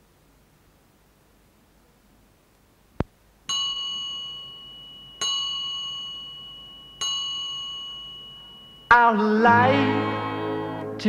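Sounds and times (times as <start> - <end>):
bell-like chime: 3.5 - 9.3.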